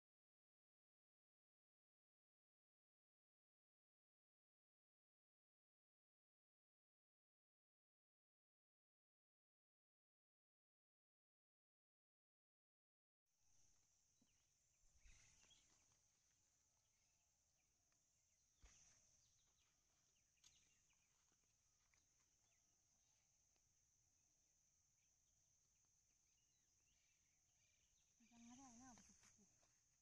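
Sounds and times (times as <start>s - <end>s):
faint high-pitched insect drone: 13.4s - 30.0s.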